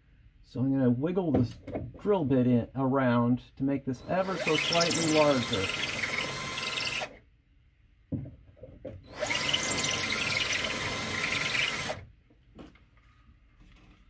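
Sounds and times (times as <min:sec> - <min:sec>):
cordless drill drilling into plaster: 0:04.0 - 0:07.2, 0:09.0 - 0:12.1.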